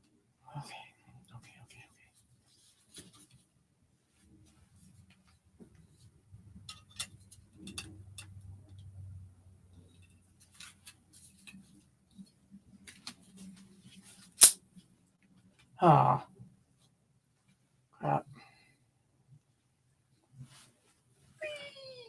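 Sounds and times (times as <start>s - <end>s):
small clicks and knocks: 6.6s - 8.9s
sharp loud snap: 14.4s - 14.6s.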